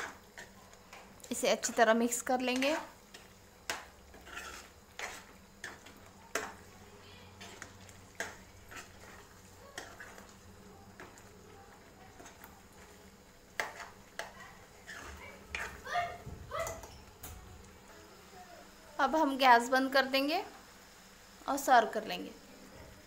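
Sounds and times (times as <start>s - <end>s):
metal spoon scraping steel pan: 3.7s - 6.6s, 7.4s - 10.3s, 14.8s - 15.8s.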